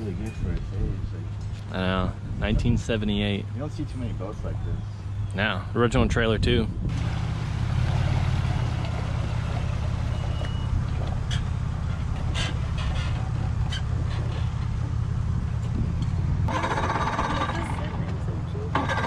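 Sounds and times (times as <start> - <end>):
engine idling: 6.9 - 19.0.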